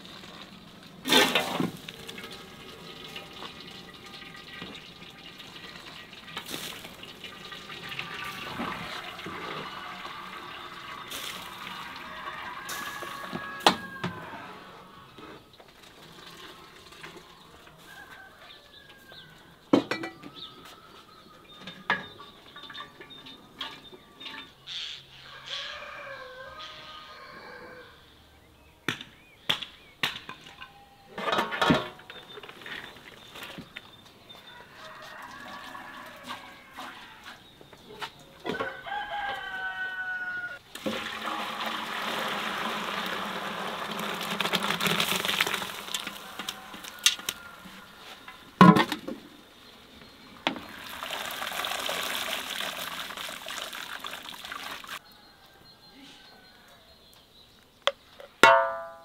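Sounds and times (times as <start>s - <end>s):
hot water pouring off rice: 0.0s - 13.6s, 40.7s - 47.4s, 50.6s - 55.0s
rooster crowing: 8.2s - 15.1s, 17.6s - 19.6s, 25.2s - 28.1s, 34.5s - 37.3s, 38.5s - 40.6s, 45.8s - 48.6s, 55.0s - 57.1s.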